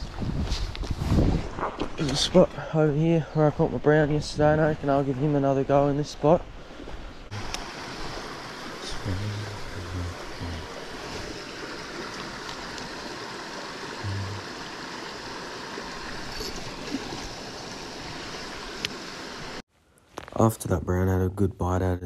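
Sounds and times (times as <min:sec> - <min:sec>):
river water rushing: 0:07.3 - 0:19.6.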